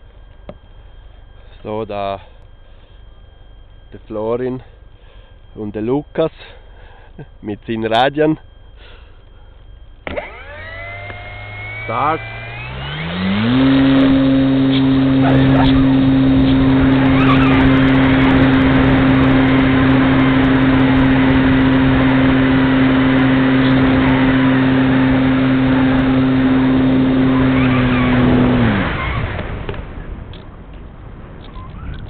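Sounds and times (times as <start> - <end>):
electric motor and propeller whine: 9.2 - 32.0.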